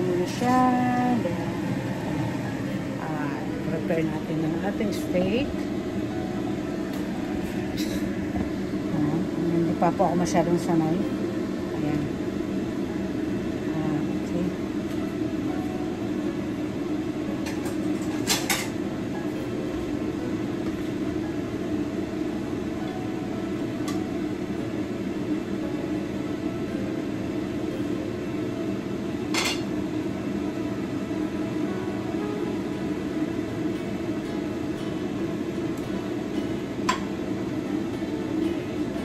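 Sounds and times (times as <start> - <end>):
steady mechanical hum: 0.0 - 39.0
utensils and dishes clinking: 17.4 - 18.8, 29.3 - 29.7.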